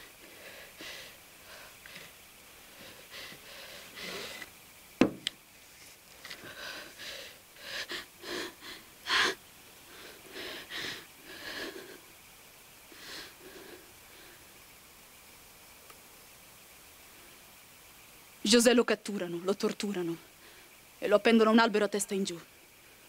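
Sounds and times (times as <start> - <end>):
sharp knock: 5.0 - 5.3.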